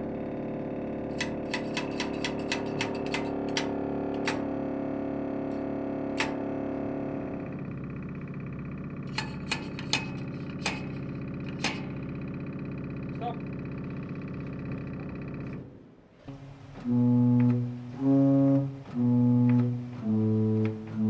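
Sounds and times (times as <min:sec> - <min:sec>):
tuning tool tapping wire: 0:01.2 - 0:04.5, 0:09.1 - 0:11.9
organ reed pipe sustained note: 0:16.3 - 0:21.0.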